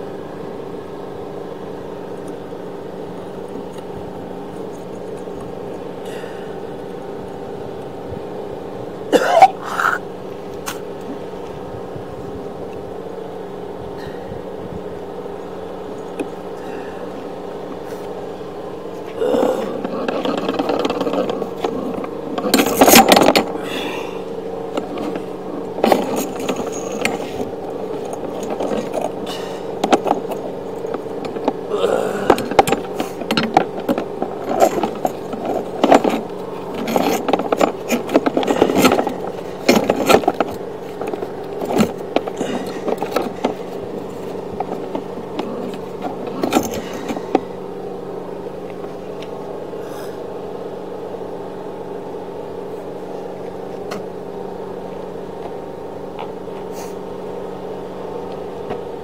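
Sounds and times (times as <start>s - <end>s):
mechanical hum: 0.0s - 59.0s
cable scraping and rattling: 15.9s - 47.6s.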